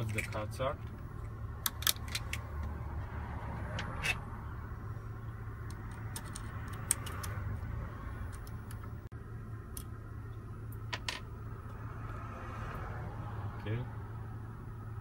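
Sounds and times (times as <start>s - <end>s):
steady low machine hum: 0.0s - 15.0s.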